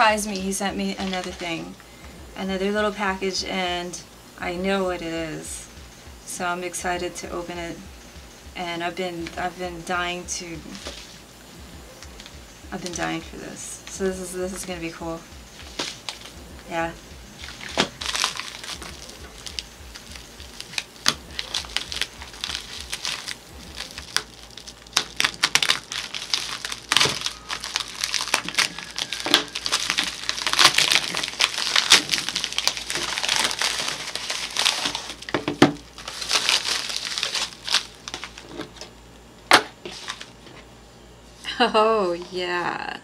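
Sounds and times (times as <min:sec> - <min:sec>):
plastic bag tearing and crinkling: 0:15.6 - 0:38.9, 0:39.9 - 0:40.4.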